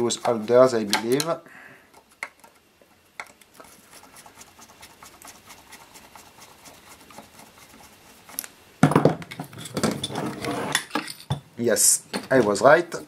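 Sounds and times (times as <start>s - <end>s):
faint scratching and ticks: 0.0s - 1.2s, 1.9s - 8.5s.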